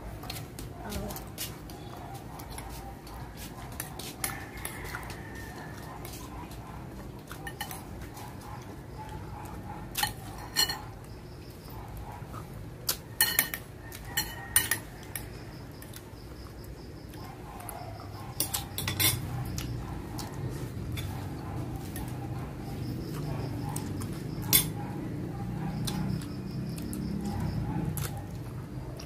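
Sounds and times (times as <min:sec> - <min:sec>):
utensils clinking against plate: 0:03.4 - 0:06.3, 0:07.2 - 0:08.3, 0:09.9 - 0:11.1, 0:13.2 - 0:15.4, 0:18.4 - 0:19.4, 0:24.4 - 0:24.8.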